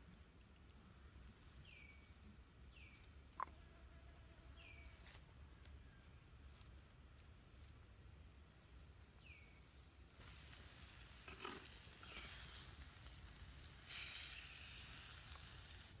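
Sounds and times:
food sizzling in a pan: 10.2 - 16.0.

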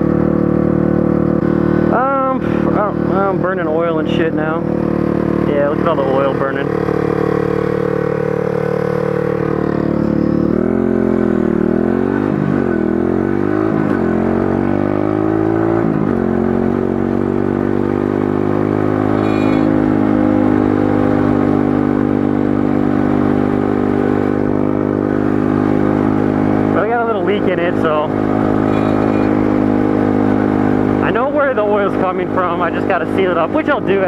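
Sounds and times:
small motorbike engine revving: 0.0 - 34.0.

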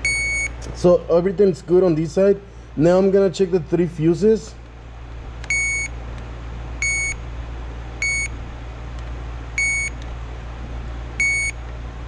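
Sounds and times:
circuit tester beeping: 0.0 - 0.7, 5.4 - 6.0, 6.8 - 7.2, 8.0 - 8.4, 9.6 - 10.0, 11.2 - 11.6.

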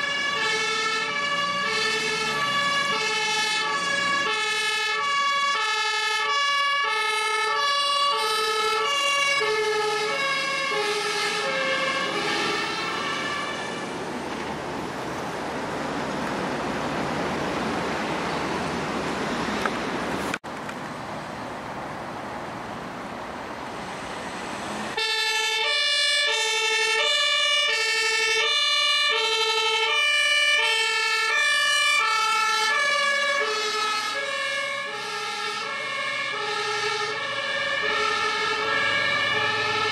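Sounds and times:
ambulance two-tone siren: 0.0 - 13.9, 24.8 - 39.9.

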